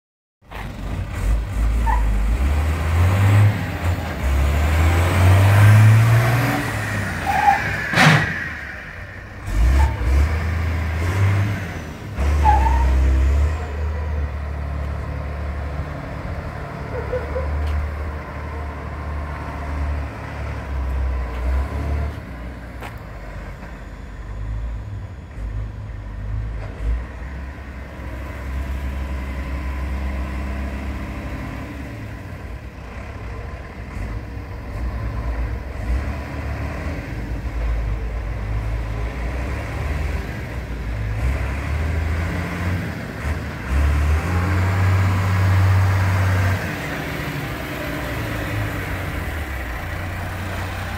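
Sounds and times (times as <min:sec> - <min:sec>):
diesel truck engine accelerating: 0:00.4 - 0:50.9
sharp sudden sound: 0:06.9 - 0:10.1.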